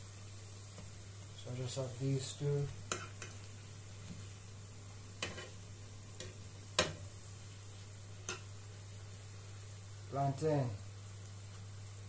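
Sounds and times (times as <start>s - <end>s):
faint sizzling oil: 0.0s - 12.0s
metal fork clicking on frying pan: 8.2s - 8.5s.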